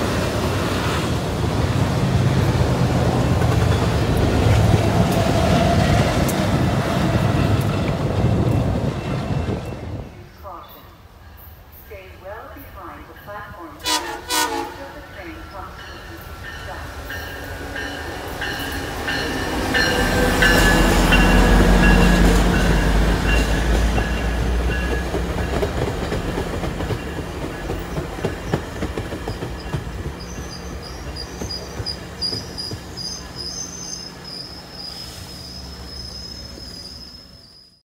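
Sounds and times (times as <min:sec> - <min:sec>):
diesel locomotive engine rumble: 0:00.0 - 0:11.0, 0:11.9 - 0:37.8
high wheel squeal: 0:29.6 - 0:37.8.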